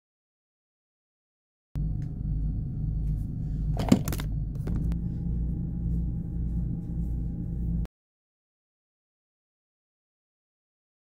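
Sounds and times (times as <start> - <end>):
low machine hum with whine: 1.8 - 7.9.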